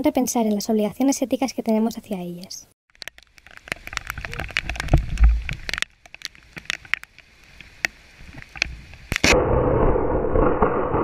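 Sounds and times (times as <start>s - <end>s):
handling crackle and clicks: 2.9s - 9.3s
wind and rain on microphone: 3.0s - 9.8s
lightning strike crack: 9.2s - 11.0s.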